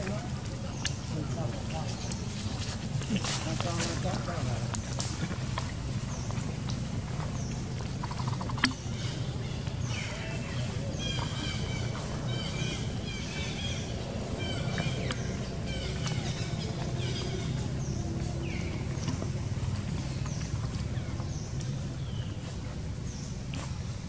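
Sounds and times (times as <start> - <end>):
steady low hum: 0.0 - 24.0
birds chirping and whistling: 6.0 - 23.3.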